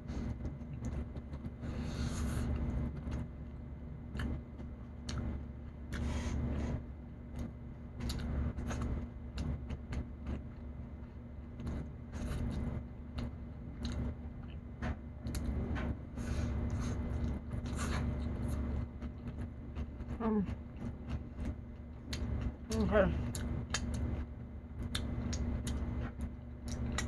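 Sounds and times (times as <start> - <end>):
steady low hum: 0.0 - 27.0
chewing and mouth clicks: 4.1 - 5.3, 7.3 - 14.6, 16.6 - 24.2, 24.8 - 27.0.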